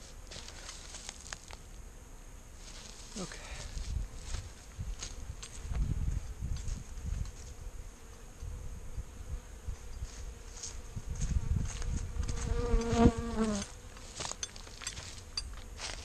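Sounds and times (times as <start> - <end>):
honeybees buzzing: 0.0 - 16.0
bee flying close past: 3.8 - 14.4.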